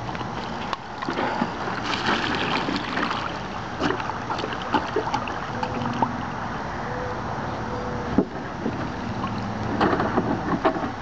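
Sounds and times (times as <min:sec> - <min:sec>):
water sloshing in plastic jug: 0:00.1 - 0:06.2.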